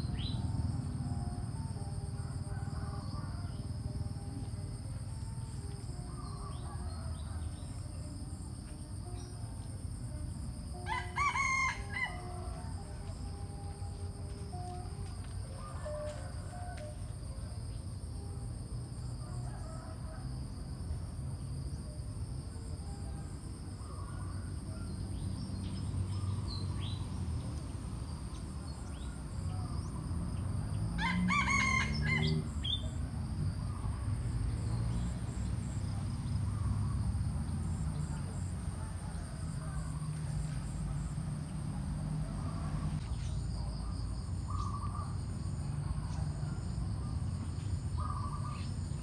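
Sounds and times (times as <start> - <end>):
rooster crowing: 2.2 - 3.8, 6.2 - 7.8, 10.7 - 13.2, 15.4 - 17.1, 19.1 - 20.6, 30.6 - 32.8, 38.0 - 41.2.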